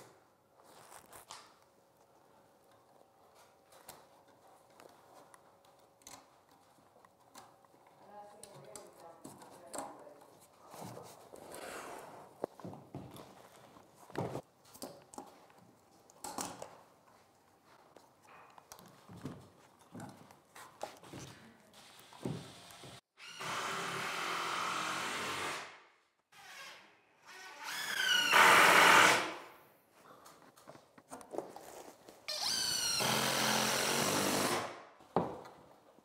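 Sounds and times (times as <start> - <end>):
cordless drill driving screws: 21.8 - 25.7, 26.4 - 29.4, 32.3 - 34.7.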